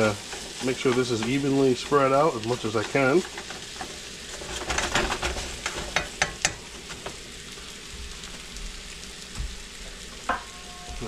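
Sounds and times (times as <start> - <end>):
utensil scraping a pan: 0.0 - 7.2
chicken sizzling in a pan: 0.0 - 11.0.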